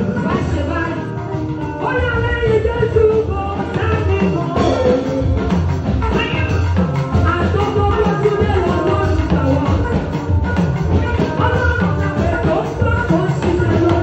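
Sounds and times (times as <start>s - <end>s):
band with bass and drums: 0.0s - 14.0s
woman singing into microphone: 0.0s - 14.0s.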